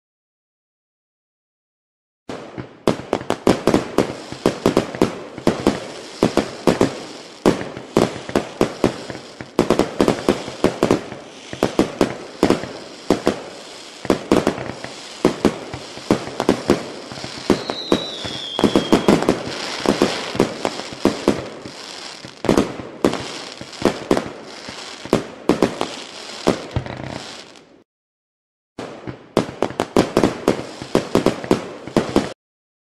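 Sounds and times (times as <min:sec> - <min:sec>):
fireworks bangs: 0:02.3 - 0:27.8, 0:28.8 - 0:32.4
fireworks crackle: 0:02.3 - 0:27.8, 0:28.8 - 0:32.4
falling whistle: 0:17.5 - 0:19.3.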